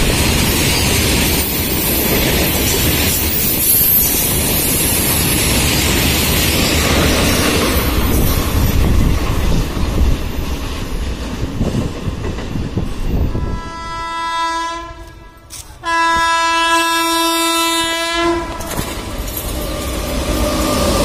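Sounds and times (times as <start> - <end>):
train wheels clattering: 0.0 - 13.3, 18.4 - 21.0
locomotive horn blowing: 13.4 - 18.9.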